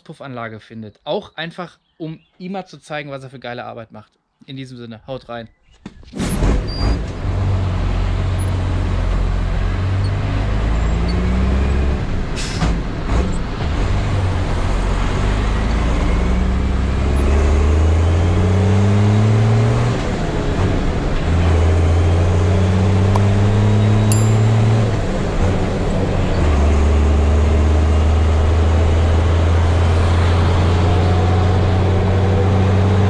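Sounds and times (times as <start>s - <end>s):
diesel truck engine accelerating: 6.6s - 33.0s.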